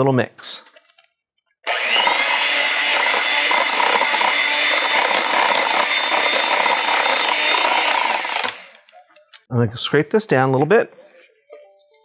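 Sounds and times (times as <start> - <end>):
electric hand mixer whining: 1.7 - 8.8.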